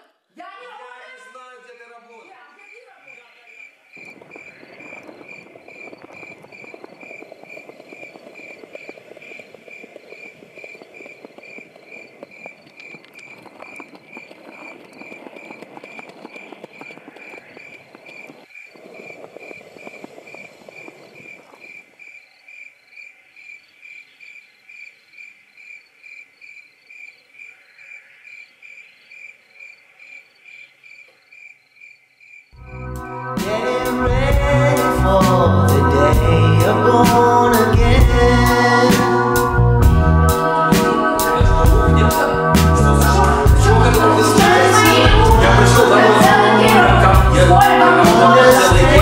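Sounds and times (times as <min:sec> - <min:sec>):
cricket chirping: 0:02.2 - 0:32.9.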